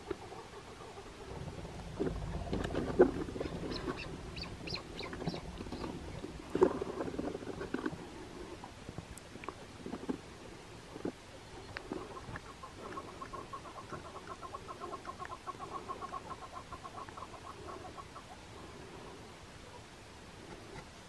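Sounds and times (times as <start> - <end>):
partridge clucking call: 3.4 - 5.9, 11.9 - 18.4.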